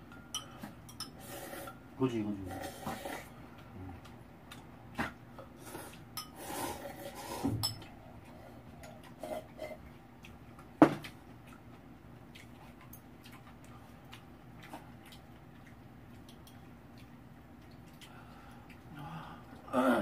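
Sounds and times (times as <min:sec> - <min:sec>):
utensils clinking against a bowl: 0:00.0 - 0:01.8, 0:05.8 - 0:09.8.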